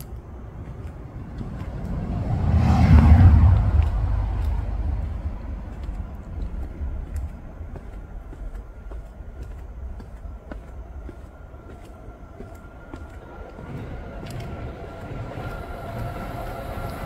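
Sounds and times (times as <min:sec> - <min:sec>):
car passing by: 0:00.6 - 0:07.5, 0:13.6 - 0:17.0.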